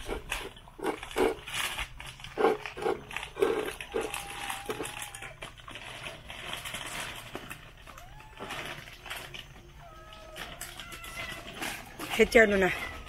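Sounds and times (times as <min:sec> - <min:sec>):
plastic pouch crinkling: 0:00.0 - 0:13.0
puppies yelping: 0:03.4 - 0:05.4, 0:07.8 - 0:13.0
puppy whining: 0:03.4 - 0:05.5, 0:07.8 - 0:13.0.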